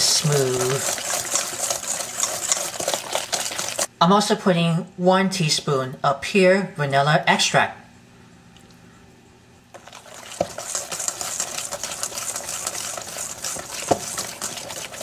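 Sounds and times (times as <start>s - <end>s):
whisk scraping in steel bowl: 0.0s - 3.9s, 9.8s - 15.0s
whisk wires knocking bowl: 0.0s - 3.9s, 9.7s - 15.0s.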